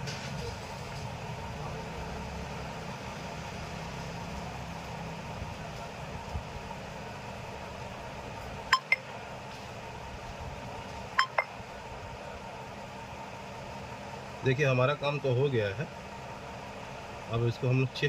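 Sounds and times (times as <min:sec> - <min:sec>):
low background hum: 0:00.0 - 0:18.0
short electronic beeps: 0:08.7 - 0:09.1, 0:11.2 - 0:11.6.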